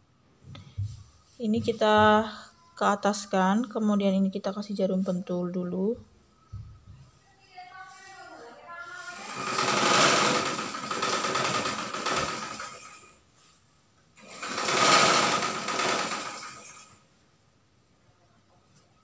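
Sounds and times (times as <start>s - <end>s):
electric sewing machine running: 9.0s - 13.2s, 14.2s - 17.0s.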